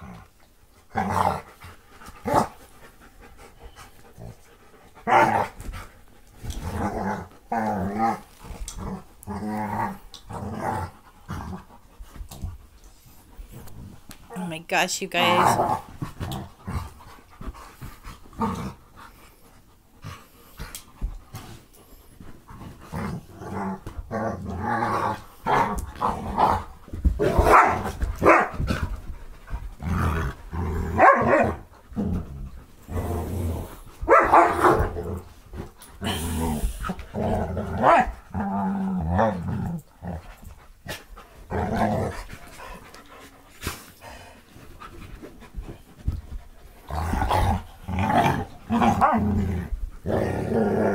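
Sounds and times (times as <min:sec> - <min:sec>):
dogs play growling: 0:00.0 - 0:14.4, 0:15.3 - 0:50.9
dog barking: 0:27.5 - 0:28.5, 0:31.0 - 0:31.5, 0:34.1 - 0:34.7.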